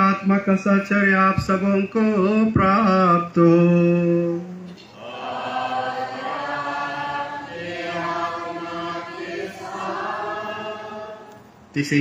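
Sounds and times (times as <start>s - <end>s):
congregation chanting in unison: 5.0s - 11.5s.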